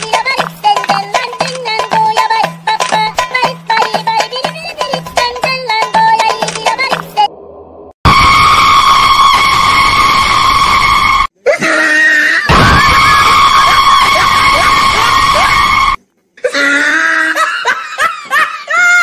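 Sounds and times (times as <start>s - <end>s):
long high-pitched scream: 8.1s - 16.0s.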